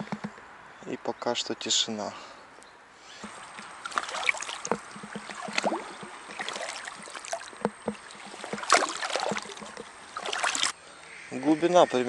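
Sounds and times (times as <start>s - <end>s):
small knocks: 0.0s - 0.5s, 3.2s - 10.7s
water sloshing and splashing: 3.2s - 10.8s.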